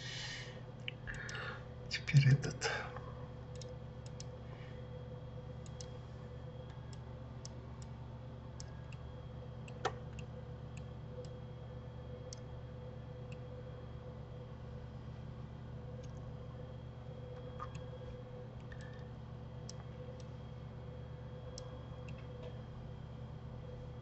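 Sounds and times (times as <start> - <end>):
low electrical hum: 0.0 - 24.0
computer mouse clicks: 3.5 - 4.4, 5.6 - 6.0, 8.6 - 9.0, 12.3 - 12.5, 17.4 - 20.3, 21.5 - 22.6.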